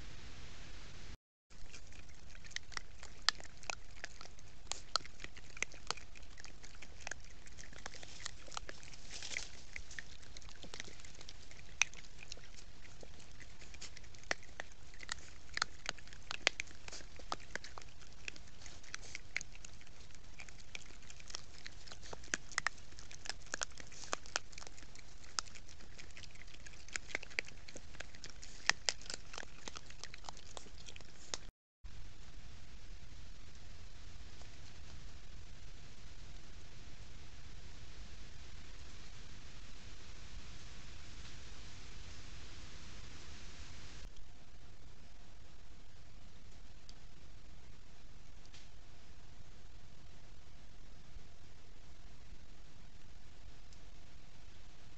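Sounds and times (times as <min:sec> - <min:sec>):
steady hiss: 0:00.0 - 0:01.2, 0:31.9 - 0:44.1
animals crunching corn: 0:01.5 - 0:31.5.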